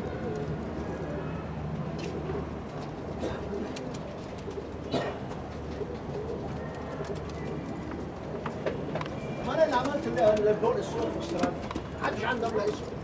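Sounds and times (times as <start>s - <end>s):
pigeons cooing: 0.0s - 8.6s.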